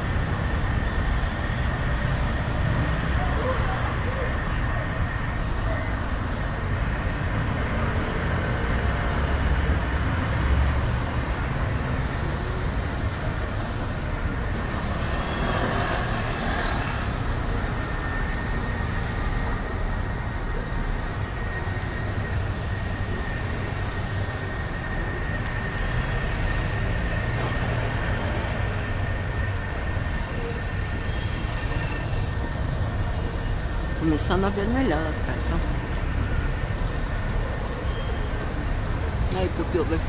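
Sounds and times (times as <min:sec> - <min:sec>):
road traffic noise: 0:00.0 - 0:40.0.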